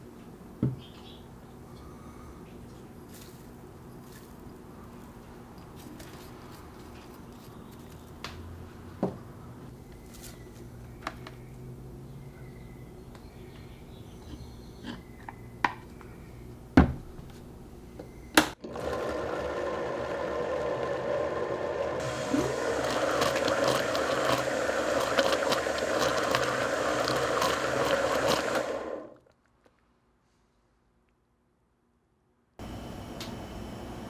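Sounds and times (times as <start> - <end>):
blender running: 18.6 - 29.2.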